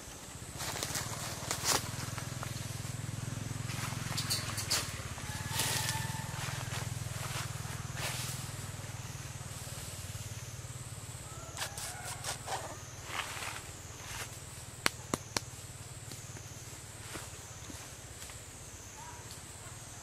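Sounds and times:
high wavering drone: 1.2 - 11.6.

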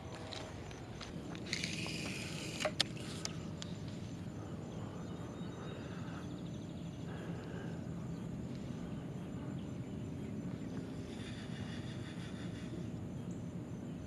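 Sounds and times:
low outdoor background rumble: 0.0 - 14.0.

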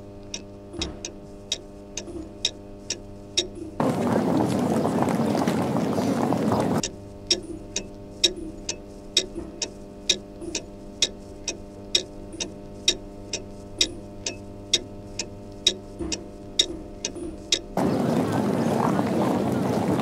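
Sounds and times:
low steady hum: 0.0 - 20.0
clock ticking: 0.3 - 3.8, 6.8 - 17.8.

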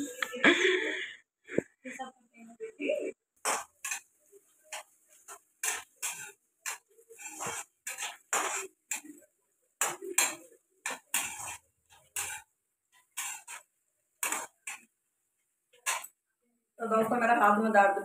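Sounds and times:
metal spatula scraping a pan: 3.4 - 15.0, 15.7 - 16.2.

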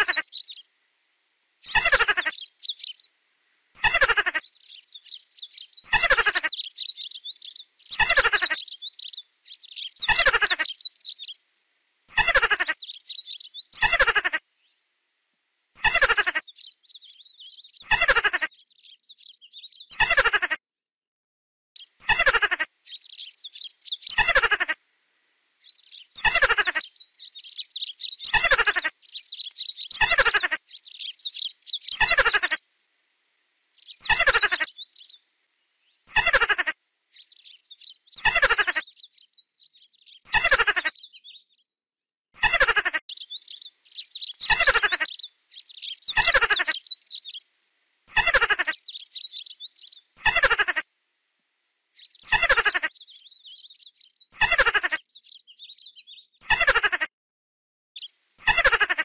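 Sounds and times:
birds chirping: 0.0 - 0.7, 1.6 - 14.8, 15.7 - 20.6, 21.8 - 24.8, 25.6 - 41.7, 42.4 - 50.9, 51.9 - 57.0, 58.0 - 59.0
mouse squeaks: 27.5 - 32.6, 40.2 - 41.0, 44.2 - 47.2, 52.2 - 52.9.

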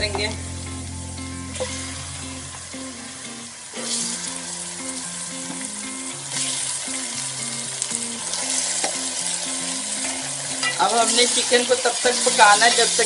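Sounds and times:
soft background tune: 0.0 - 13.0
chicken sizzling in hot oil: 2.8 - 13.0.

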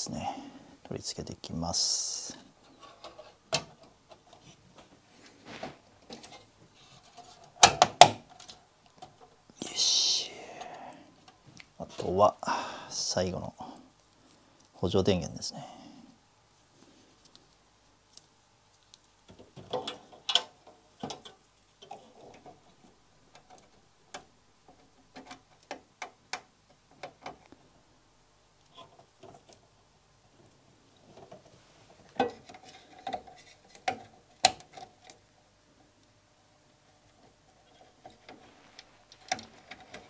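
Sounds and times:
cables and plastic connectors clicking: 38.0 - 40.0.

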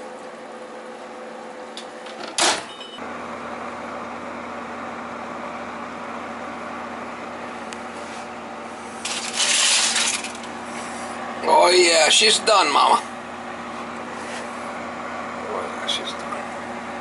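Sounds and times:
kitchen appliance humming: 0.0 - 17.0
foil crinkling: 9.0 - 10.5.

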